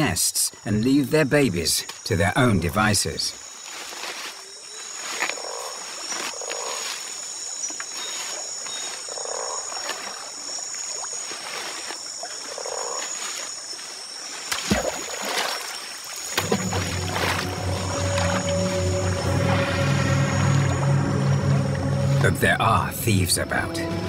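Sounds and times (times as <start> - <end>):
high-pitched drone: 16.4 - 24.0
music: 16.4 - 24.0.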